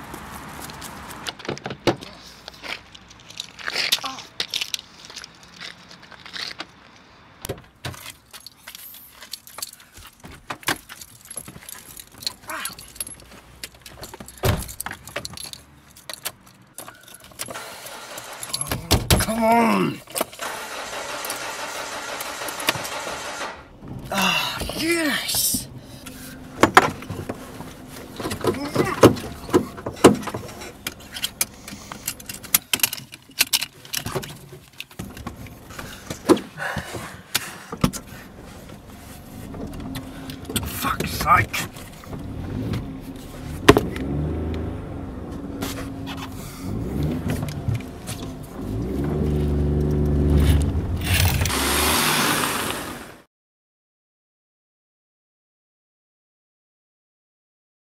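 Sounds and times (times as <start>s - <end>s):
car keys jangling: 7.9s - 19.4s, 25.7s - 36.6s
car door shutting: 39.4s - 51.7s.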